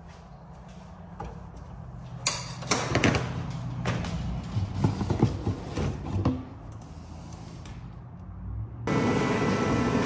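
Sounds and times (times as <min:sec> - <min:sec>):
heater humming: 0:08.9 - 0:10.0.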